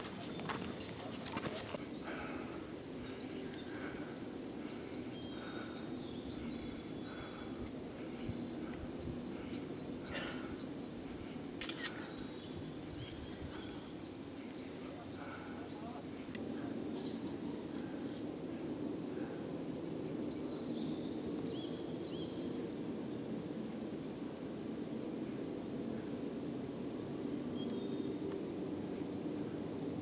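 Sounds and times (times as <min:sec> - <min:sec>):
small songbirds chirping: 0:00.0 - 0:18.2, 0:20.1 - 0:23.4, 0:27.1 - 0:28.4
low outdoor background: 0:00.0 - 0:30.0.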